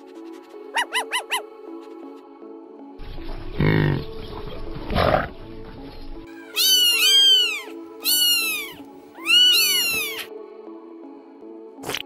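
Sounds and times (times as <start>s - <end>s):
background music: 0.0s - 12.0s
rough animal grunt: 3.5s - 4.2s, 4.8s - 5.4s
cat meowing: 6.6s - 10.3s.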